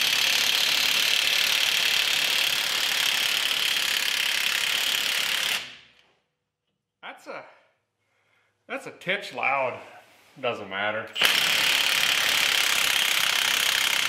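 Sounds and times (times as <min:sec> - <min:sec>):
impact wrench hammering on nut: 0:11.2 - 0:14.0.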